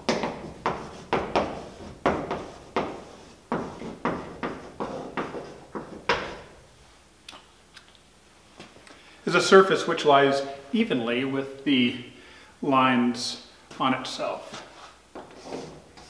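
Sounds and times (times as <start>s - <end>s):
chalk writing on blackboard: 0.1s - 6.0s.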